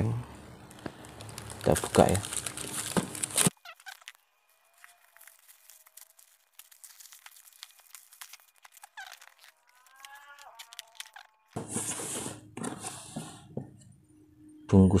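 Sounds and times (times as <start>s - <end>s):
plastic crinkling: 0.6s - 11.6s
plastic mailer ripping: 0.7s - 12.2s.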